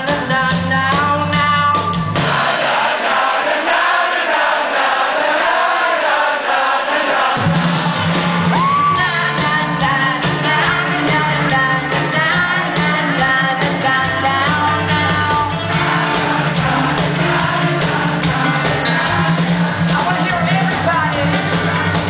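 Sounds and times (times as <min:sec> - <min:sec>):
woman singing: 0:00.0 - 0:02.0, 0:08.6 - 0:15.7, 0:19.9 - 0:22.0
rock band playing: 0:00.0 - 0:02.8, 0:07.4 - 0:22.0.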